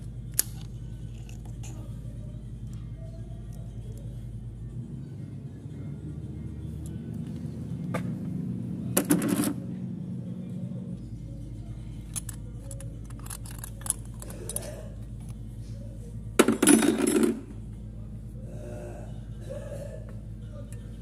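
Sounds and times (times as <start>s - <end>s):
metal parts clinking: 12.0s - 15.0s, 16.4s - 17.5s
metal clatter: 16.4s - 17.5s.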